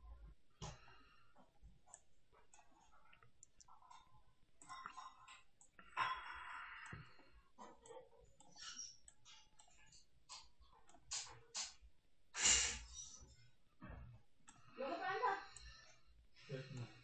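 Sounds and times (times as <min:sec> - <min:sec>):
person breathing softly: 0:05.8 - 0:07.6.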